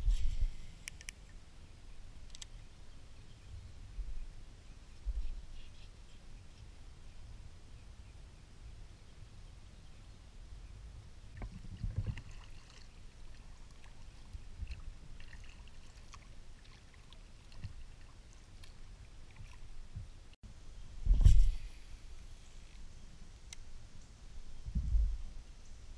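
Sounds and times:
water lapping against kayak hull: 11.4s - 20.0s.

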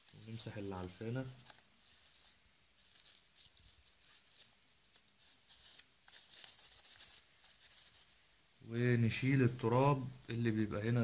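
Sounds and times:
tissue rubbing laptop fan: 0.0s - 8.3s.

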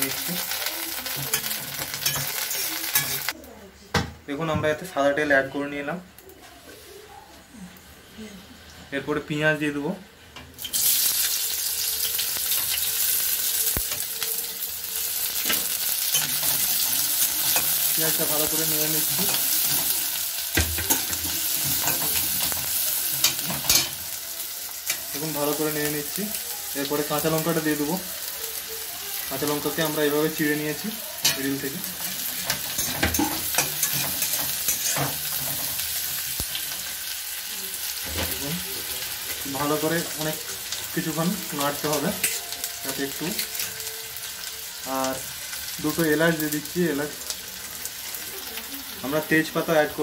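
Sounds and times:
onions sizzling in oil: 0.0s - 3.6s, 4.8s - 50.0s
spatula stirring in pan: 10.7s - 25.1s.

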